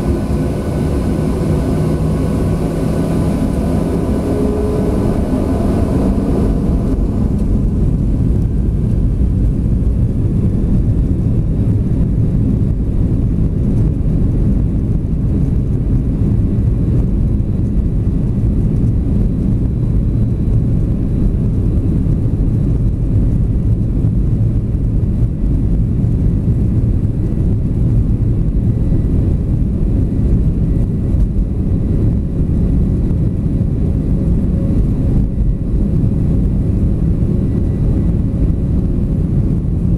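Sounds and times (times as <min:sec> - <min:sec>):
jet engines rumbling: 0:00.0 - 0:39.9.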